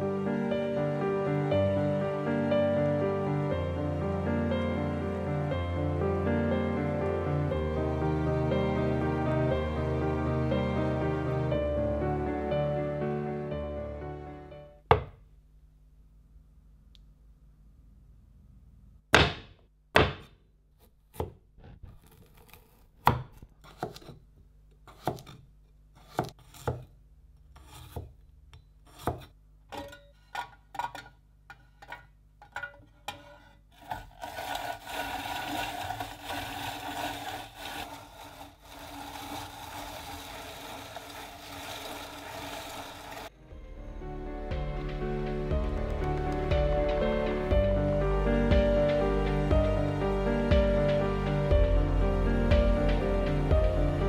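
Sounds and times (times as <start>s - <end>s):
cleaver chopping carrots on wood: 23.0s - 24.2s, 24.9s - 25.4s, 26.0s - 26.9s, 28.9s - 29.3s
rotary grater rasping: 33.1s - 43.3s.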